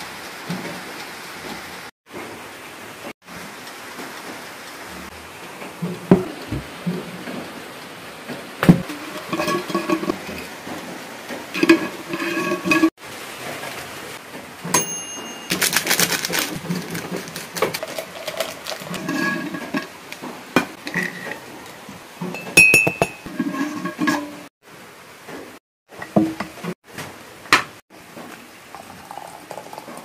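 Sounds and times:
dishes and cutlery clinking: 0:08.7 - 0:10.5, 0:14.8 - 0:19.9, 0:22.2 - 0:24.5.

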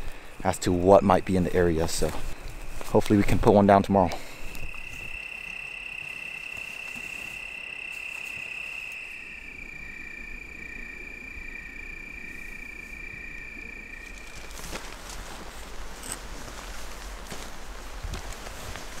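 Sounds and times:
crickets trilling: 0:00.0 - 0:19.0
lower wavering cricket trill: 0:00.2 - 0:17.8.

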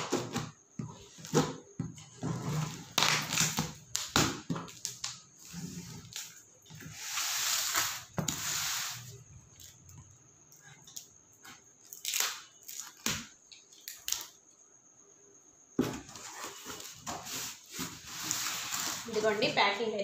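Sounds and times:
cardboard flaps clicking and knocking: 0:15.8 - 0:17.3.

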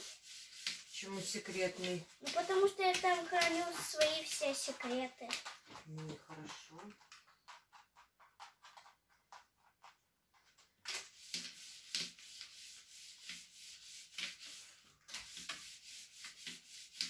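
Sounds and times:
rag rubbing window blinds: 0:00.0 - 0:05.7, 0:10.9 - 0:17.0.

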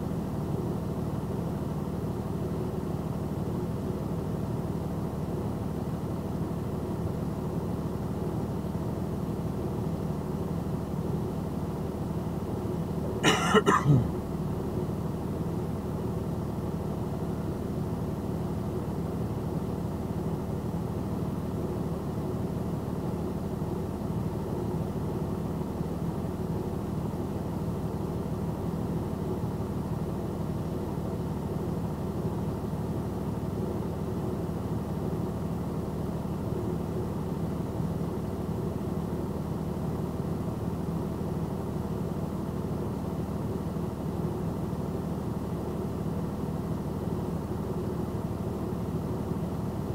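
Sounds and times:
idling engine hum: 0:00.0 - 0:49.9
person coughing: 0:13.2 - 0:14.2.

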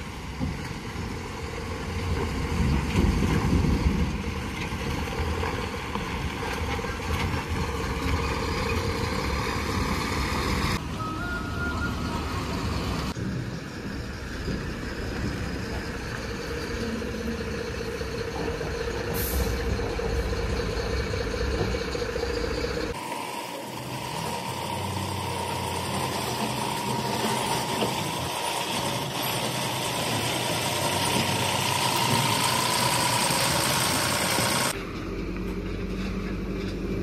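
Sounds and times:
diesel engines running: 0:00.0 - 0:37.0
held whine: 0:07.3 - 0:34.8.

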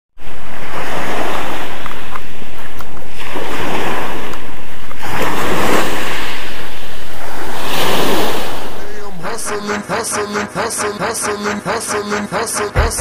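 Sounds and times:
waves washing on pebble beach: 0:00.2 - 0:08.8.

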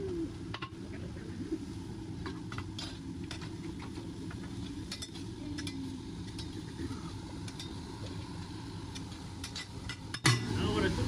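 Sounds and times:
steady low rumble: 0:00.0 - 0:11.0
food sizzling: 0:02.3 - 0:11.0.

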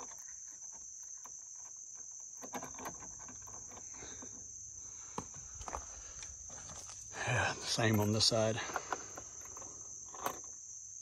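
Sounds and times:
insect chorus: 0:00.0 - 0:11.0
chain clinking on hook: 0:07.5 - 0:10.5.

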